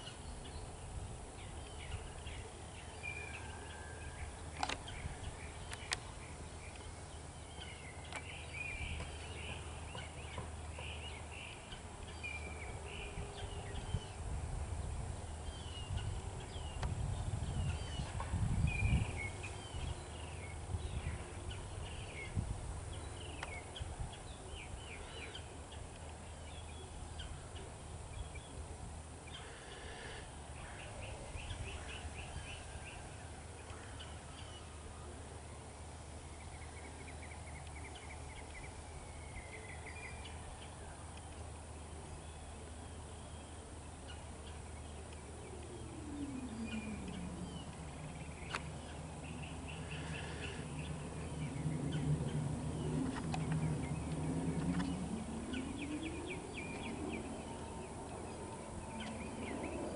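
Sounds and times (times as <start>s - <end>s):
small birds chirping: 0.0s - 59.9s
steady low hum: 0.0s - 59.9s
low rumble: 45.8s - 59.9s.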